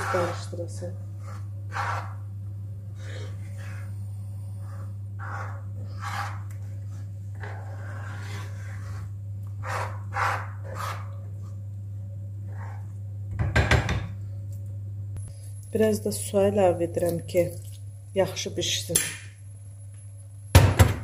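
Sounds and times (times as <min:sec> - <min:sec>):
spoon scraping a pan: 0:00.0 - 0:02.2, 0:03.0 - 0:03.9, 0:04.6 - 0:11.2
low hum: 0:00.0 - 0:18.2.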